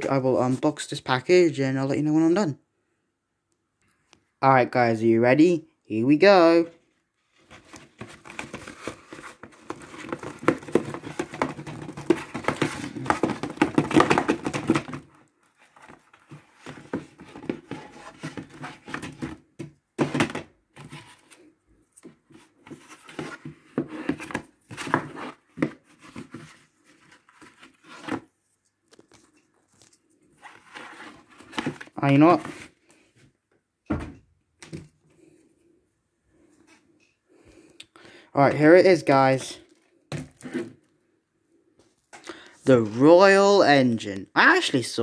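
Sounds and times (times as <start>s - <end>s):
packaging rustling: 6.8s - 21.5s
cardboard ripping: 7.4s - 15.1s.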